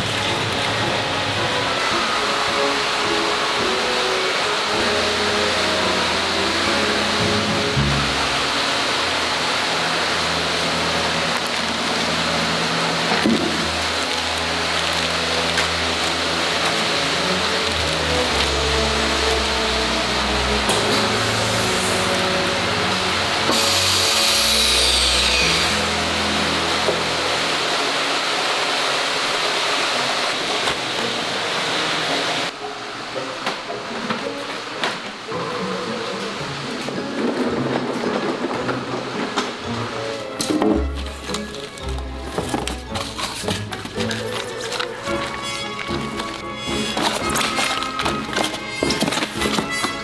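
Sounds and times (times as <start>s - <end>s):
background music: 0.0s - 28.3s, 32.4s - 50.0s
steady rushing hiss: 0.0s - 37.9s.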